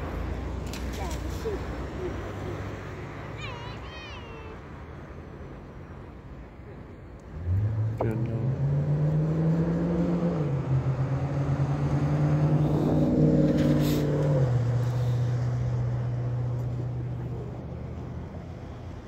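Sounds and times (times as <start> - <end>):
engine passing by: 7.2 - 19.0.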